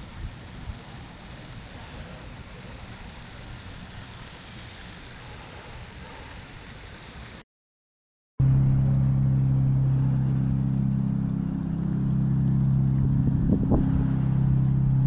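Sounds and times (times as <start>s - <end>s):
deep mechanical hum: 0.0s - 6.8s, 8.4s - 15.0s
wind noise: 12.6s - 15.0s.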